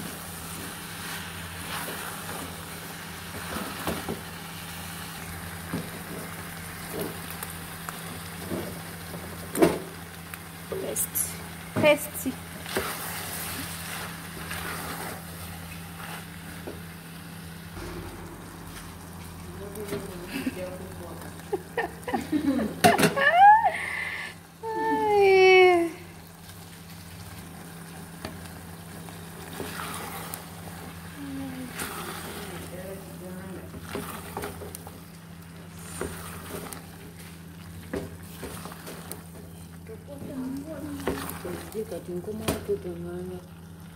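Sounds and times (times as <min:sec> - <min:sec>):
low hum and hiss: 0:00.0 - 0:43.9
wooden spoon scraping a pot: 0:12.6 - 0:16.4, 0:29.4 - 0:30.5, 0:35.7 - 0:37.4
low hum: 0:16.4 - 0:22.6.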